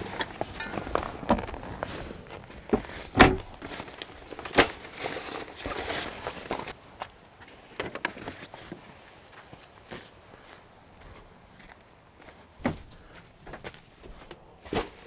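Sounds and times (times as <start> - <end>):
gear rustling: 0.0 - 6.8.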